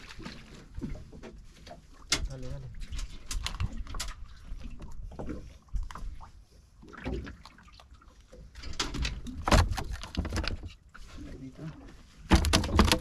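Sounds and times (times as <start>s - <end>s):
knocks and thumps: 12.3s - 13.0s.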